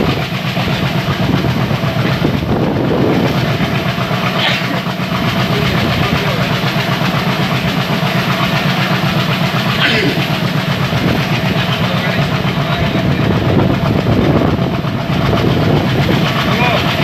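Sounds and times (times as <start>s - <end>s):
diesel locomotive engine chugging: 0.0s - 17.0s
train wheels clattering on rails: 0.0s - 17.0s.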